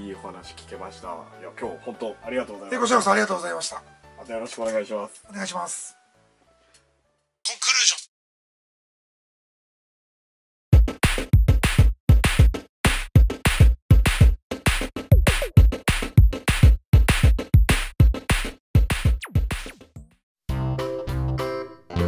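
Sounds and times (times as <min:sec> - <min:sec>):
melodic music with held notes: 0:00.0 - 0:07.3, 0:20.5 - 0:22.0
drum machine beat: 0:10.8 - 0:20.2.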